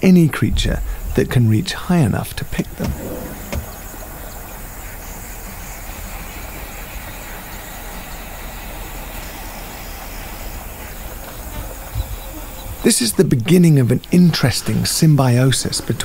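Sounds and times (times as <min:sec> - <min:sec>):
even hiss: 0:00.1 - 0:10.4
low rumble: 0:00.4 - 0:04.4.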